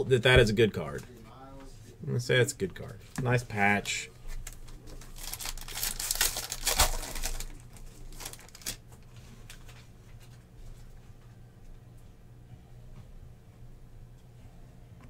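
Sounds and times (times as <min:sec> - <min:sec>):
cards and sleeves rustling: 0:04.3 - 0:10.4.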